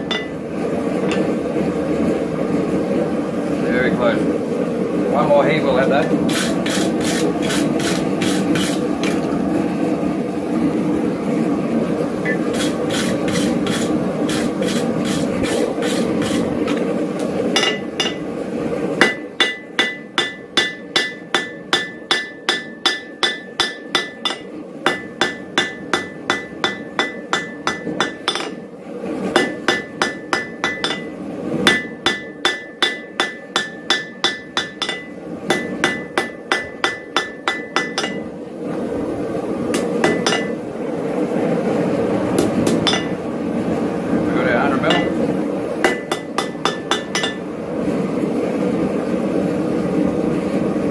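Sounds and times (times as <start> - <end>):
wire brush scrubbing steel: 6.3 - 8.9, 12.3 - 16.8
hammer blows on hot steel: 19.0 - 28.6, 29.4 - 38.3.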